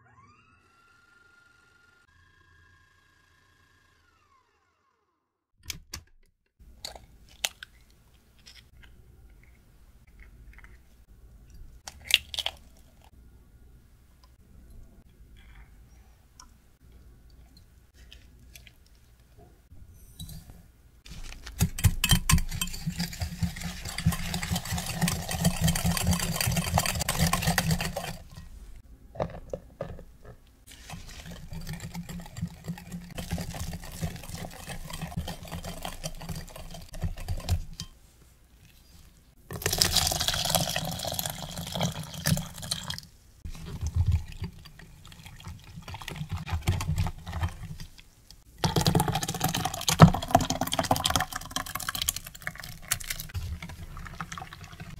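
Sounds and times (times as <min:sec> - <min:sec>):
powder being sifted: 0:21.0 - 0:21.8, 0:22.4 - 0:28.8, 0:30.7 - 0:39.2
whisk beating in glass jug: 0:21.6 - 0:28.6, 0:30.7 - 0:38.0, 0:48.6 - 0:54.9.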